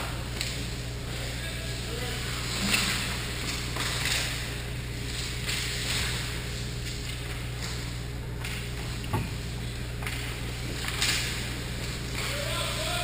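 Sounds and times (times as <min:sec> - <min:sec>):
steady low hum: 0:00.0 - 0:13.0
hockey sticks clattering: 0:02.2 - 0:09.4, 0:10.0 - 0:13.0.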